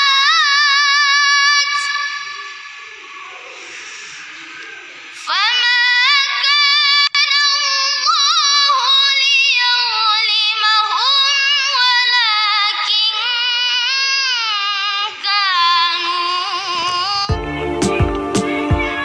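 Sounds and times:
boy reciting melodically: 0:00.0 - 0:17.4.

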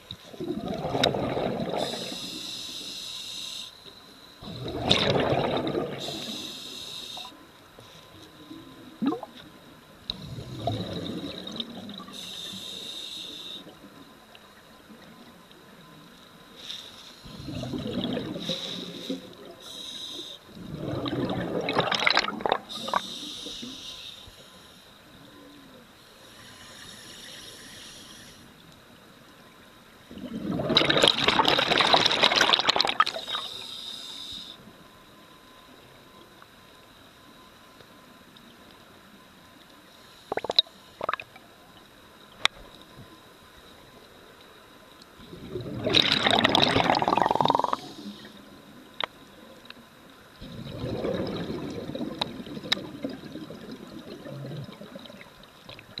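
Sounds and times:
underwater gurgle: 0:00.0 - 0:03.5, 0:04.4 - 0:23.9, 0:30.0 - 0:34.5, 0:40.2 - 0:56.0
faint hiss: 0:00.0 - 0:21.7, 0:22.6 - 0:30.5, 0:33.1 - 0:45.7, 0:47.0 - 0:56.0
exhaled bubbles rumbling: 0:00.3 - 0:02.2, 0:04.4 - 0:06.3, 0:09.0 - 0:09.4, 0:10.1 - 0:12.1, 0:17.3 - 0:18.6, 0:20.6 - 0:23.0, 0:30.1 - 0:33.2, 0:45.2 - 0:47.9, 0:50.4 - 0:56.0
regulator inhalation hiss: 0:01.8 - 0:04.0, 0:06.0 - 0:07.4, 0:12.1 - 0:13.8, 0:16.5 - 0:17.5, 0:18.4 - 0:20.5, 0:22.7 - 0:25.0, 0:26.0 - 0:28.6, 0:33.1 - 0:34.7, 0:47.3 - 0:48.5.

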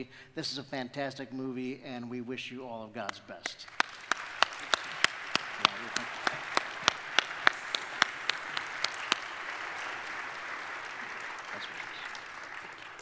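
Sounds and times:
sharp hand claps close up: 0:03.1 - 0:13.0
audience applauding: 0:03.6 - 0:13.0.

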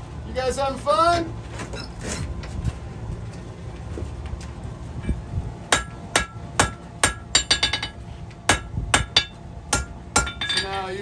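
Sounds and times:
hammer striking steel on anvil: 0:05.7 - 0:10.9.

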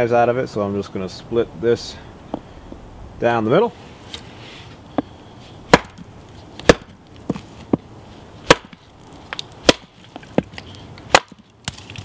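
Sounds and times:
hatchet splitting wood: 0:05.7 - 0:07.8, 0:08.4 - 0:12.0.

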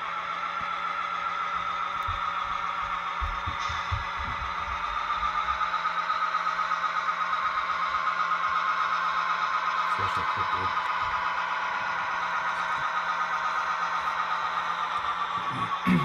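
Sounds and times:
model train whining: 0:00.0 - 0:16.0
soft low thumps: 0:02.0 - 0:05.4.

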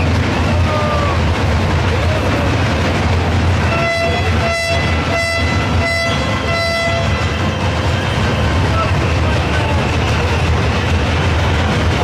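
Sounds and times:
loud crowd din: 0:00.0 - 0:05.8, 0:07.0 - 0:12.0
horn tooting short notes: 0:03.7 - 0:07.2.

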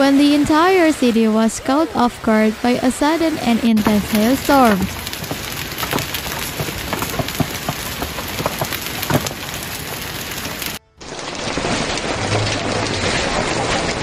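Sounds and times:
hail pelting pavement: 0:03.8 - 0:14.0.

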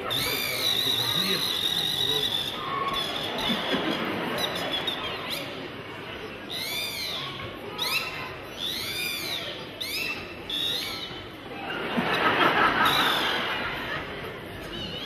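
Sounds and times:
audience murmur: 0:00.0 - 0:15.0
whistle gliding up and down: 0:00.2 - 0:03.6.

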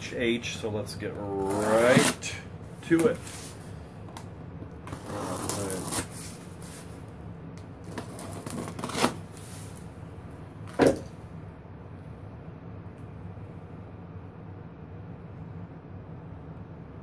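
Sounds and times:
cardboard scraping and rustling: 0:01.3 - 0:03.6, 0:04.8 - 0:07.0, 0:07.9 - 0:09.8
box cutter slicing packing tape: 0:01.4 - 0:02.4, 0:04.9 - 0:06.2, 0:07.9 - 0:09.3.

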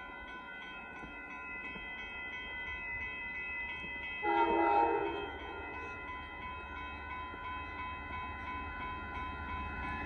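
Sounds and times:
railroad crossing bell ringing: 0:00.0 - 0:10.0
train horn chord: 0:04.2 - 0:05.8.

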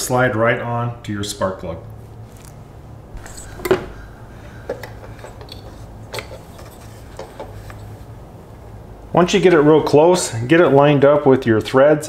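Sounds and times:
ignition coil clicks and knocks: 0:03.2 - 0:07.9.

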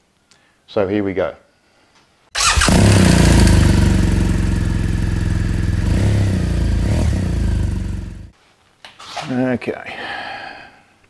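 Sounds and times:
motorcycle engine running: 0:02.4 - 0:08.3.

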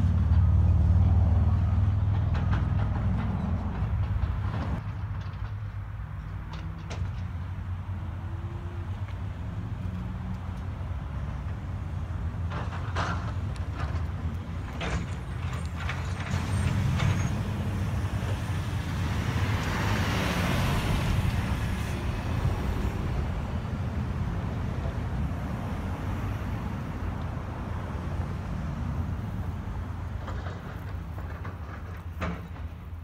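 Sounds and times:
vehicle passing: 0:00.0 - 0:04.8, 0:06.4 - 0:32.6
road traffic rumble: 0:00.0 - 0:33.0.

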